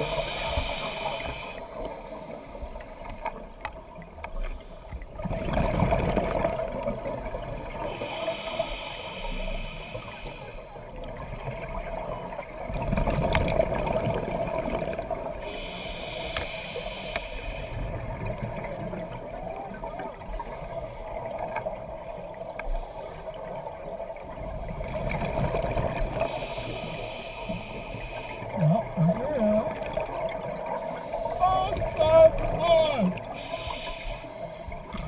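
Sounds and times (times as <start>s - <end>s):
scuba regulator breathing: 0.0s - 3.4s, 4.4s - 5.2s, 6.8s - 11.0s, 12.0s - 12.8s, 14.0s - 18.0s, 19.6s - 21.3s, 24.2s - 28.6s, 30.7s - 32.0s, 33.2s - 35.0s
exhaled bubbles hissing: 0.0s - 35.0s
steady underwater hum: 0.0s - 35.0s.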